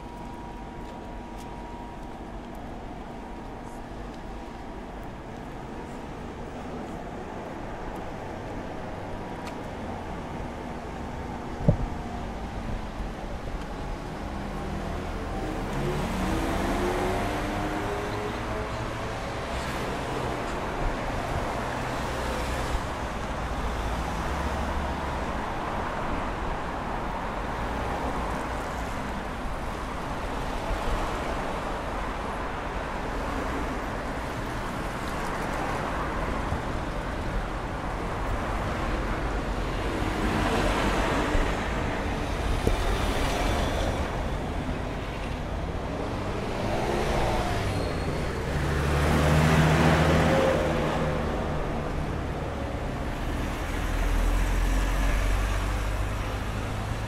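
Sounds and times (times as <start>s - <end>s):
vehicles driving past: 0.0s - 57.0s.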